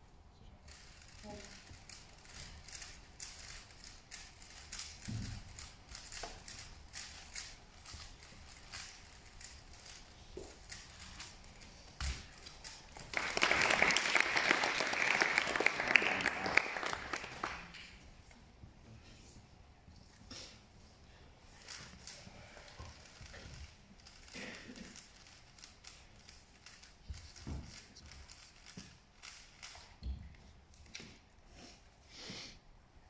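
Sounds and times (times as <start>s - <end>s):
audience applause: 12.9s - 17.9s.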